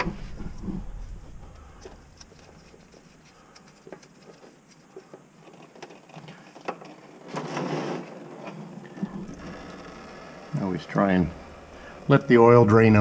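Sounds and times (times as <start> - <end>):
light clicks and handling noises: 0.0 - 7.1.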